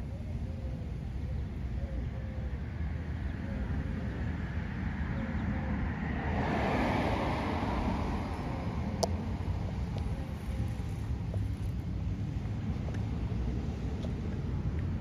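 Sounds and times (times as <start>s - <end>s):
wind rumbling on microphone: 0.0s - 15.0s
car passing: 3.2s - 15.0s.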